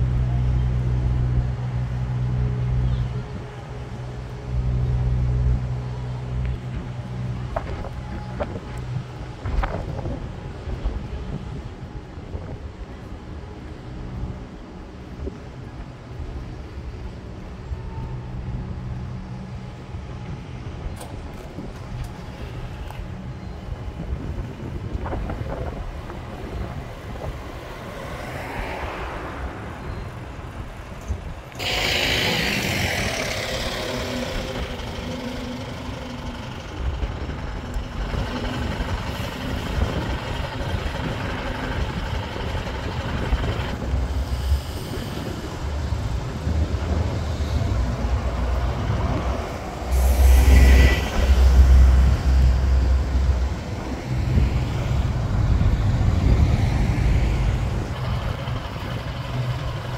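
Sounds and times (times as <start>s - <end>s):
bus engine deep rumble: 0.0s - 59.9s
bus engines running: 0.0s - 59.9s
air brakes hissing: 31.5s - 36.7s, 44.0s - 46.1s, 49.7s - 53.2s.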